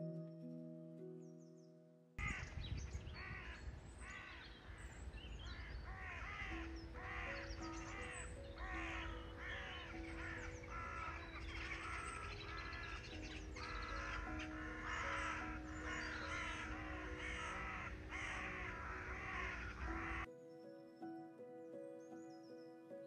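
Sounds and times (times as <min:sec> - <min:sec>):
soft background music: 0:00.0 - 0:02.4, 0:03.1 - 0:23.0
crows cawing: 0:02.2 - 0:02.5, 0:03.2 - 0:20.3.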